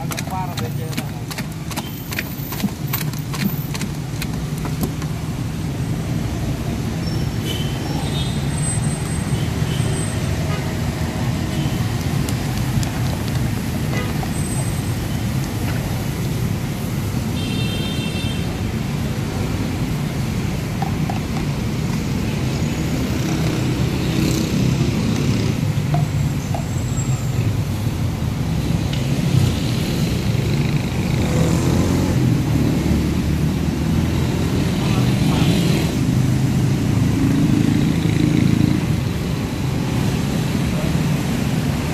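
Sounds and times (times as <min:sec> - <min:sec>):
road traffic rumble: 0:00.0 - 0:41.9.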